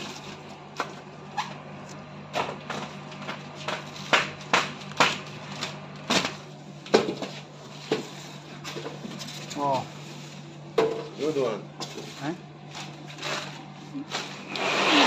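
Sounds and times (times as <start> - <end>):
plastic packaging knocks and crinkles: 2.3 - 9.3.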